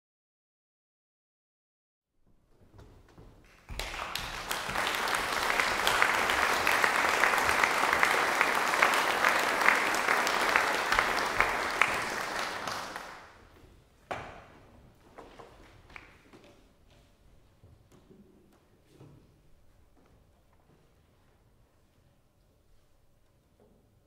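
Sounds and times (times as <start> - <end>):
audience applauding: 3.4 - 13.4.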